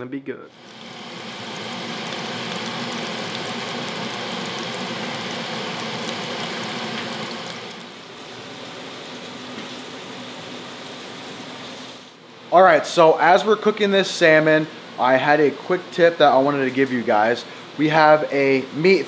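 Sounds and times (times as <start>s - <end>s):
fish sizzling in oil: 0.5s - 12.2s.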